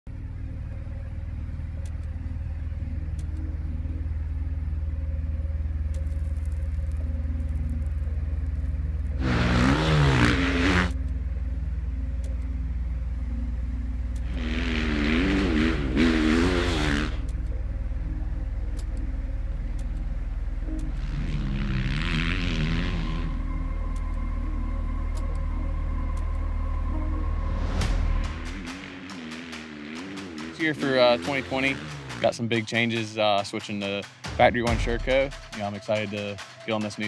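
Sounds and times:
steady low drone: 0.1s - 37.0s
dirt bike engine revving: 9.2s - 11.0s, 14.2s - 17.4s, 20.8s - 23.5s, 27.9s - 32.4s.

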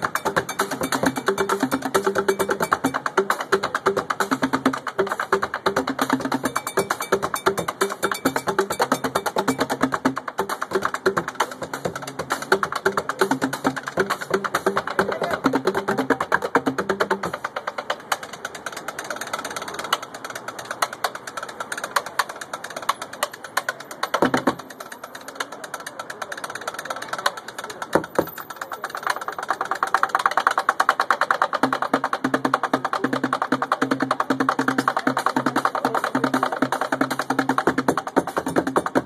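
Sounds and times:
drumming on buckets and scrap: 0.0s - 39.0s.

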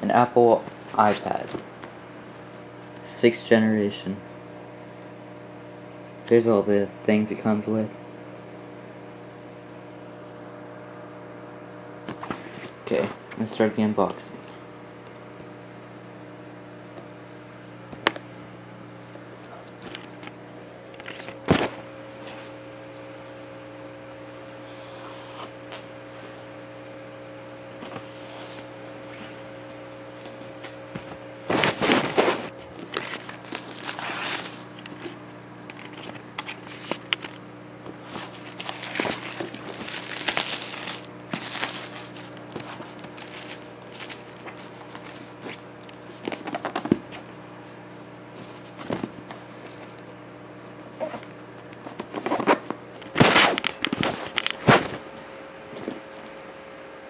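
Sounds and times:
steady low hum: 0.0s - 57.0s
packaging rustling and crinkling: 31.5s - 47.3s.

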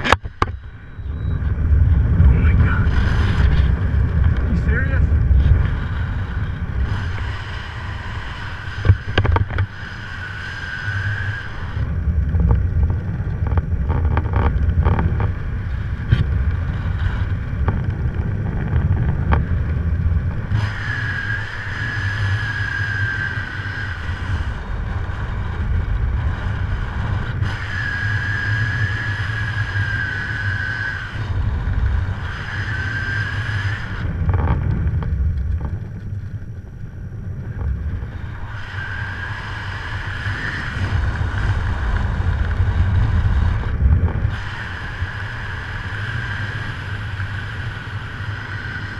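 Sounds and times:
wind buffeting microphone: 0.0s - 48.9s
high wavering whistle-like tone: 0.5s - 1.6s, 20.6s - 24.4s.

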